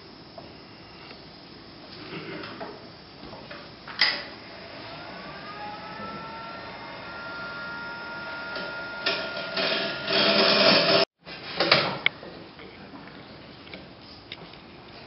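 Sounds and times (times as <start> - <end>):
lathe motor whine: 4.2 - 11.1
gouge cutting spinning wood: 4.7 - 11.0.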